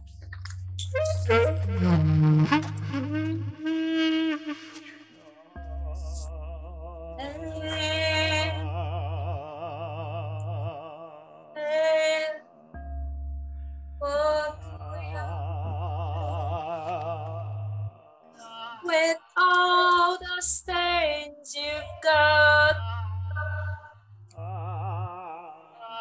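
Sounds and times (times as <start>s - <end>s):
low steady drone: 5.6s - 11.0s
woman singing wordless notes: 7.2s - 8.7s, 11.5s - 12.7s, 14.0s - 15.5s, 18.4s - 24.0s.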